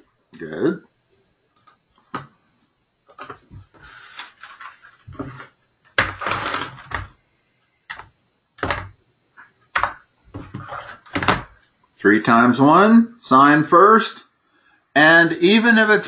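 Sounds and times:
rustling noise: 3.3s - 5.6s.

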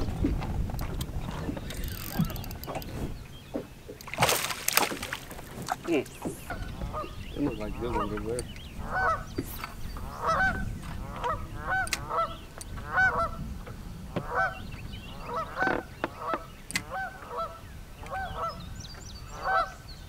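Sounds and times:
geese honking: 5.8s - 13.4s, 14.1s - 18.6s, 19.3s - 19.8s.

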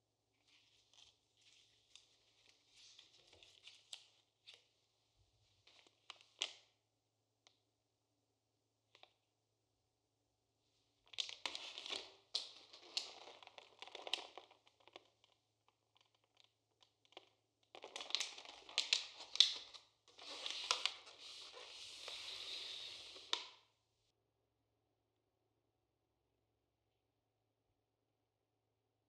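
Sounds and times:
plastic packaging crinkling: 11.2s - 15.2s, 17.1s - 22.1s.

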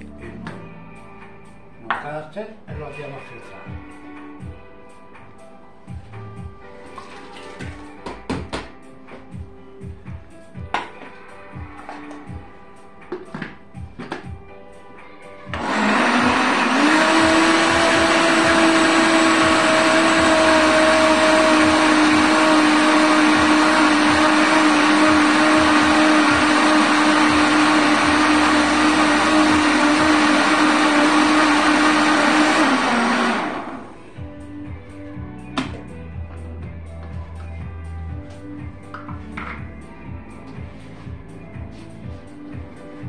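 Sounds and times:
blender motor whining: 15.5s - 34.0s.

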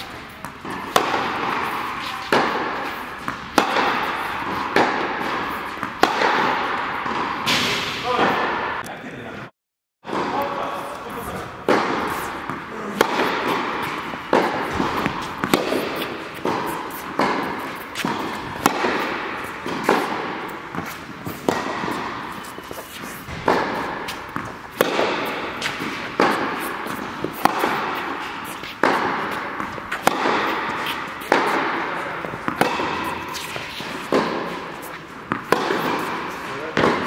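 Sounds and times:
ball bouncing on court: 0.0s - 8.8s, 11.6s - 37.0s
rackets striking tennis ball: 0.0s - 8.8s, 10.1s - 37.0s.

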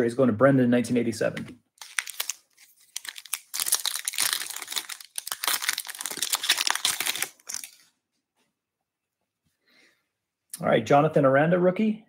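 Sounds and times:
foil wrapper tearing and crinkling: 1.8s - 7.9s.

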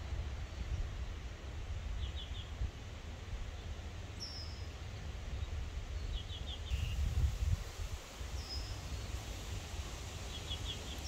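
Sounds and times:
birds chirping: 10.2s - 11.0s.

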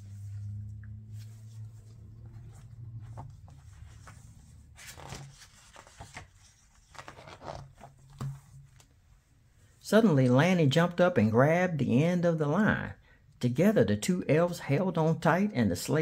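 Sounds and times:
page rustling: 0.0s - 9.0s.

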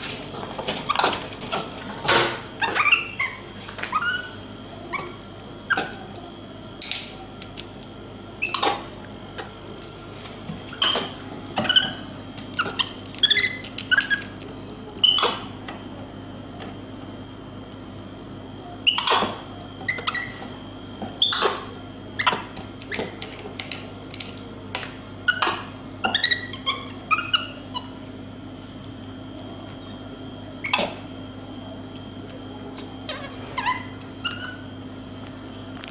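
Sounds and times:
steady electrical hum: 0.0s - 35.9s
monkey squeaking and chirping: 2.6s - 5.0s, 12.6s - 14.3s, 19.9s - 20.4s, 26.1s - 27.8s, 33.1s - 34.6s.

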